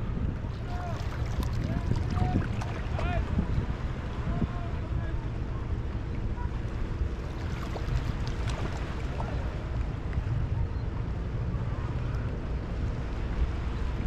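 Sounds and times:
wind rumble on microphone: 0.0 - 14.0
waves lapping on rocks: 0.5 - 4.0, 7.1 - 9.9.

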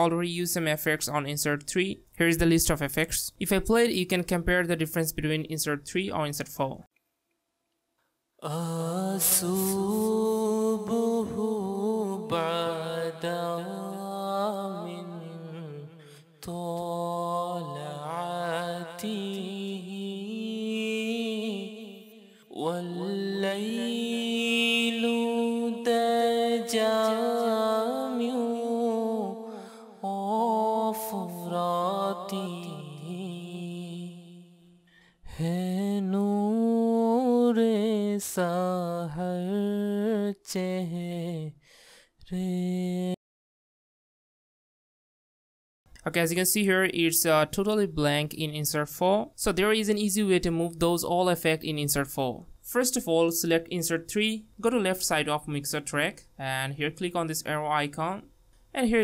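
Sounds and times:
auto-tuned singing voice: 8.4 - 34.6, 35.3 - 41.6, 42.2 - 43.2.

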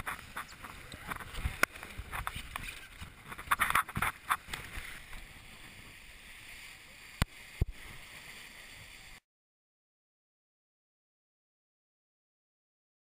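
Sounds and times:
water splashing against boat hull: 0.0 - 8.5.

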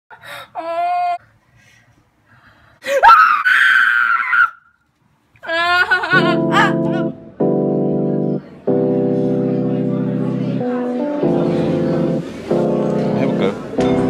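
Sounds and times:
person screaming in fright: 2.9 - 4.7
music with keyboard chords: 6.2 - 14.0.

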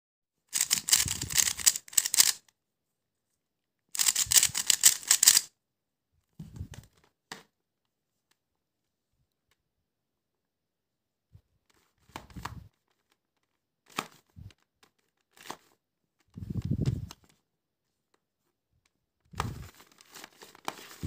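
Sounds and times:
puzzle cube clicking turns: 0.5 - 2.4, 4.0 - 5.5.

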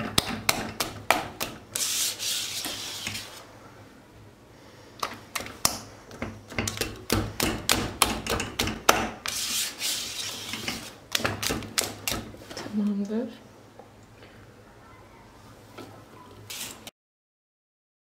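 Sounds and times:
whisk scraping a metal pot: 1.7 - 3.4, 9.2 - 11.0.

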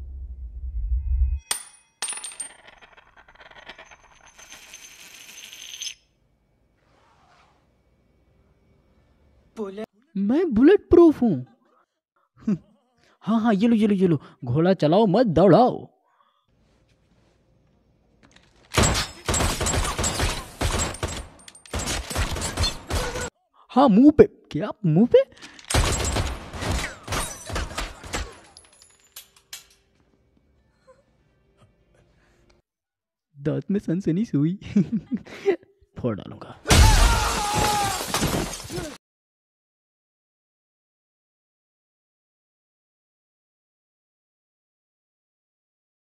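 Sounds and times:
low rumble: 0.0 - 1.4
bullets clinking on tile floor: 1.5 - 6.2, 28.3 - 29.9
rapid handgun fire: 18.8 - 23.2.

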